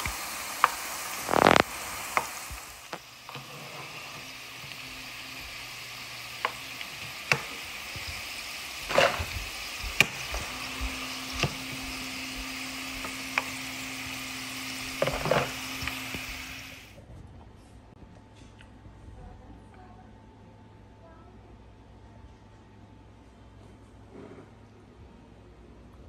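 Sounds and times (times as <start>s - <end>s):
potato chips sizzling in oil: 0.0s - 17.0s.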